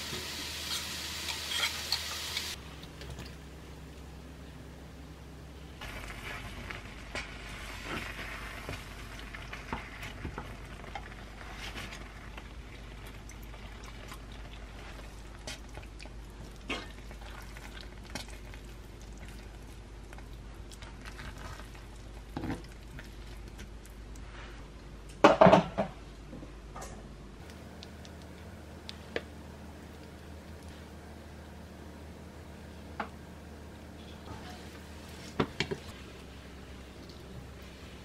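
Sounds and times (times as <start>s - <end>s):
sauce sizzling in a frying pan: 0.0s - 2.6s.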